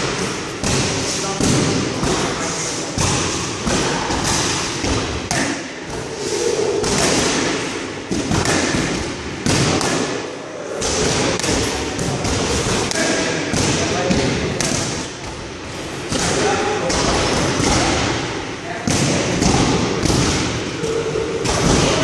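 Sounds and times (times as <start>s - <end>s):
boxing gloves punching mitts: 6.8s - 10.2s.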